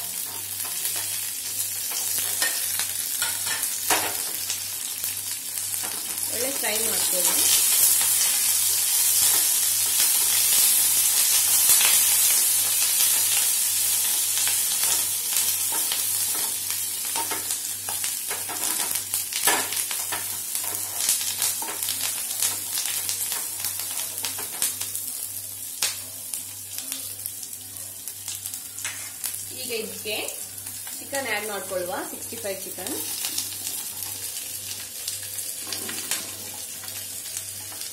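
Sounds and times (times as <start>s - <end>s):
food sizzling in hot oil: 0.0s - 37.9s.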